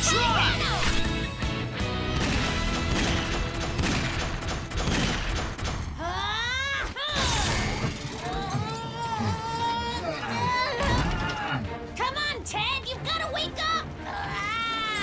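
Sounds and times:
soundtrack music: 0:00.0 - 0:05.8.

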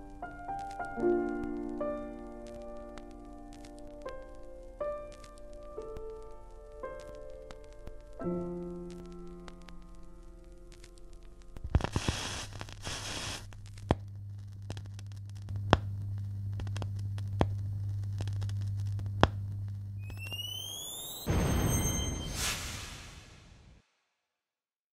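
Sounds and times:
vinyl surface crackle: 0:00.1 - 0:21.2
record player hum: 0:00.5 - 0:21.2
rising electronic sweeps: 0:20.0 - 0:23.7
whoosh: 0:20.0 - 0:24.0
piano note: 0:21.2 - 0:23.4.

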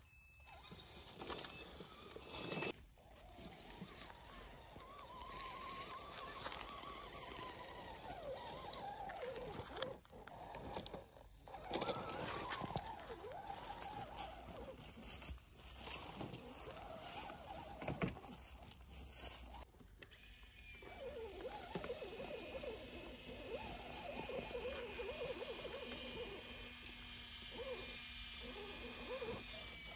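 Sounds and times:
electric motor and gearbox whining: 0:00.0 - 0:29.9
tyres crunching on leaves and twigs: 0:00.6 - 0:10.8, 0:11.5 - 0:19.7.

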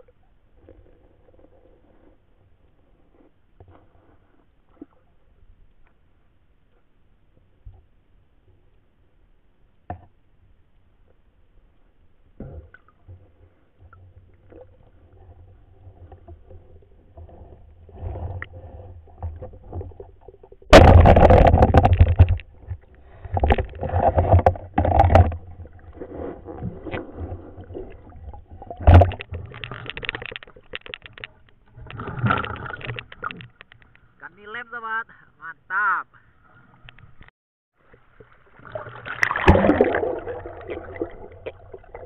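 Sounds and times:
low underwater rumble: 0:00.0 - 0:34.2
water splashing and bubbling: 0:12.3 - 0:34.1, 0:37.8 - 0:42.0.

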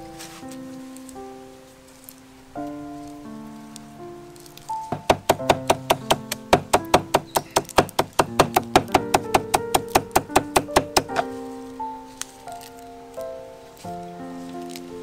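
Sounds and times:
soft background music: 0:00.0 - 0:15.0
knife chopping on wooden board: 0:04.9 - 0:11.3.

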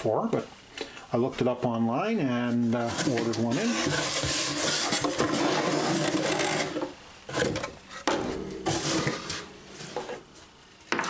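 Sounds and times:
plastic case scraping cardboard: 0:02.8 - 0:07.7.

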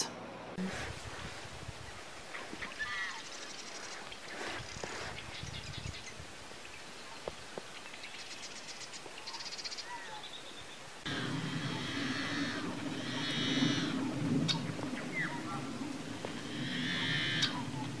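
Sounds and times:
marsh birds calling: 0:02.2 - 0:18.0
low steady hum: 0:10.9 - 0:18.0.

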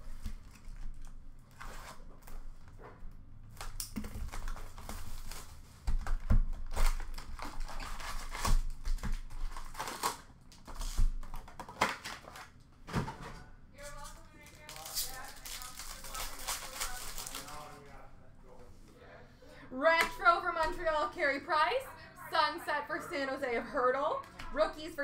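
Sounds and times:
plastic and paper wrapping crinkling: 0:03.6 - 0:12.6, 0:13.8 - 0:18.0.

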